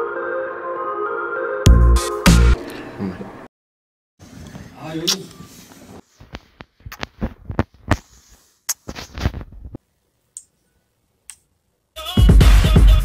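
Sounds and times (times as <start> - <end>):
loud music with heavy bass: 1.7 - 2.6, 12.0 - 13.0.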